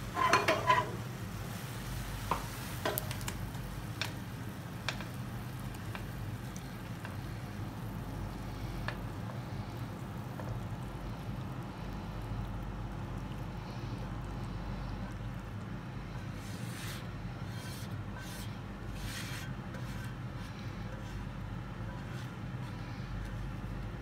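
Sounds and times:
spatula scraping a frying pan: 0.0 - 3.4, 16.0 - 23.8
steady low hum: 0.0 - 24.0
light taps on a pan: 2.2 - 3.4, 4.8 - 5.2.

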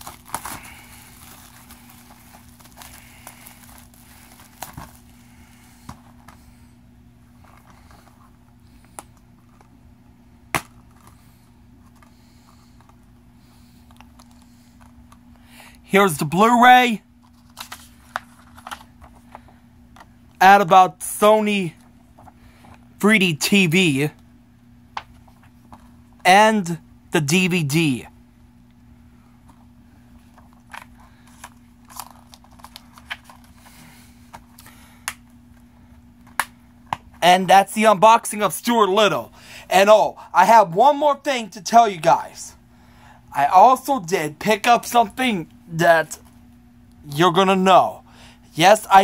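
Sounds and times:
paper rustling: 17.2 - 19.5, 30.2 - 33.8.

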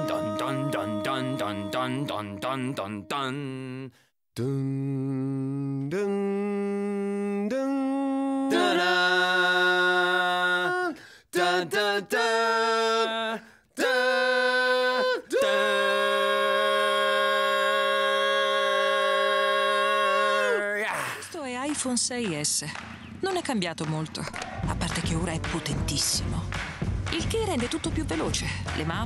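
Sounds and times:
voices singing a cappella jingle: 0.0 - 21.0.

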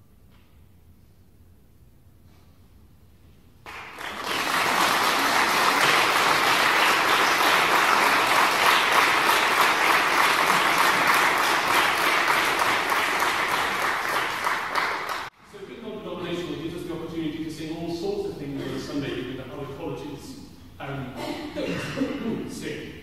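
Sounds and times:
audience applauding: 3.7 - 15.3.

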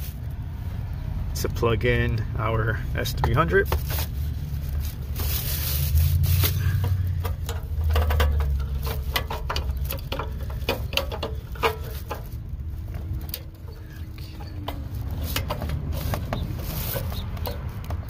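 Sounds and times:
connector clicks and rustles: 3.3 - 18.0
low rumble: 3.7 - 18.0.

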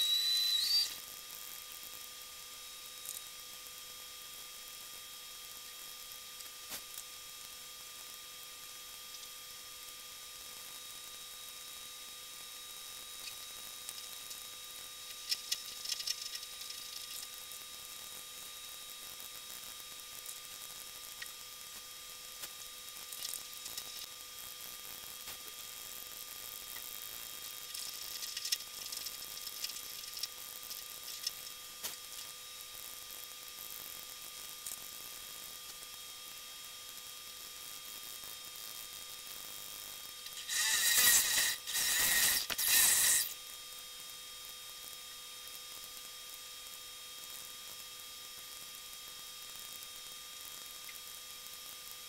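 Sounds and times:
electrical hum with hiss: 0.0 - 52.0
scratchy rasp: 40.3 - 43.3.

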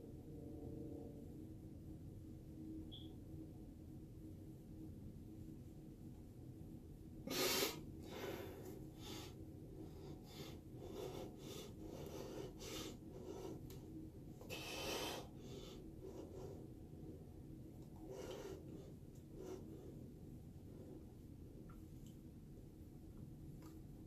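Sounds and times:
person breathing: 7.3 - 13.8, 14.4 - 16.8, 18.0 - 21.2.

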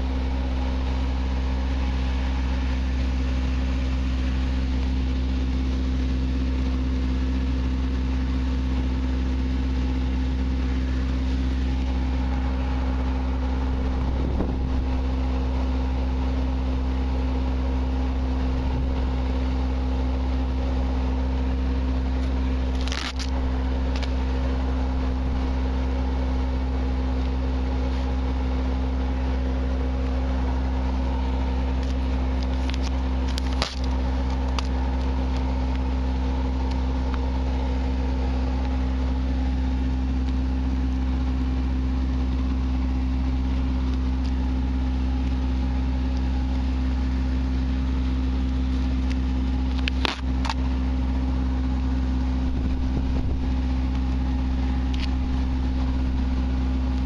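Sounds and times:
engine droning hum: 0.0 - 57.0.

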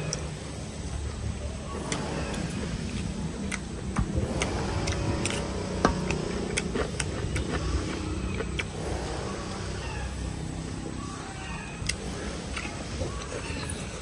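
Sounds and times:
low steady rumble: 0.0 - 14.0
person chewing and lip-smacking: 1.8 - 8.8.

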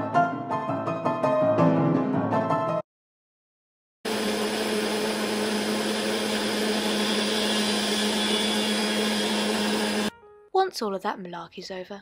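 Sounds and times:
electric blender running: 4.1 - 10.1.

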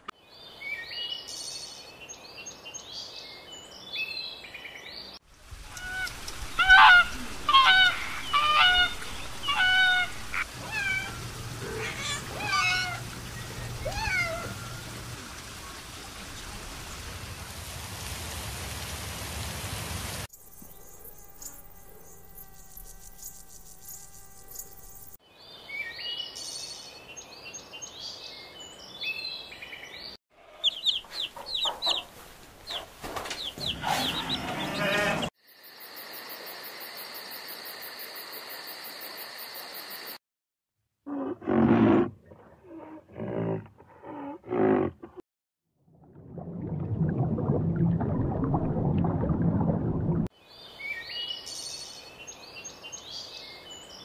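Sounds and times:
hen and chick calls: 5.7 - 11.2, 30.4 - 35.3
loud animal calls: 5.7 - 14.8.

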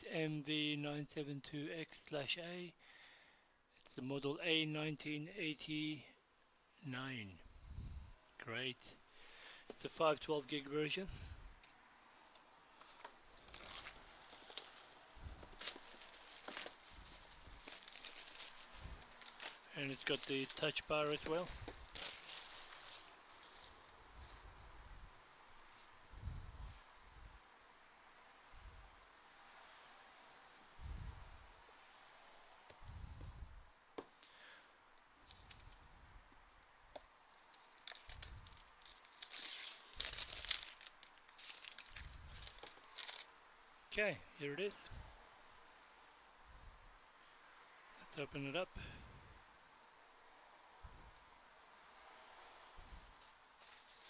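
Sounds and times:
shrink-wrap crinkling and tearing: 12.8 - 24.0, 37.3 - 43.3, 53.6 - 54.0.

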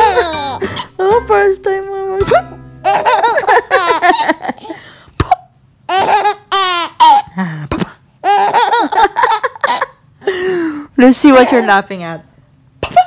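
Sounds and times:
infant laughing: 0.0 - 0.9, 2.4 - 4.8, 8.2 - 10.0.

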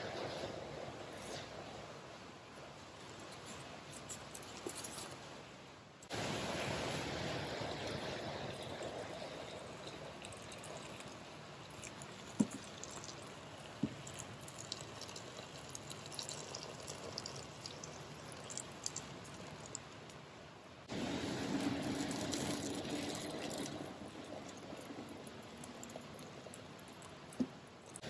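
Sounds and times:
water pouring into a pot: 7.4 - 19.9, 21.0 - 28.0.

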